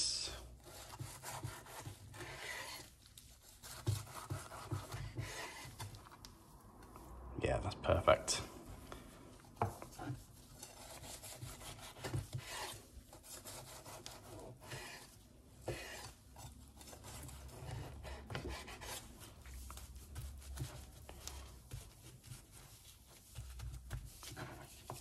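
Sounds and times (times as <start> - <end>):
knife slicing steak crust: 0.6 - 6.0, 9.8 - 19.1.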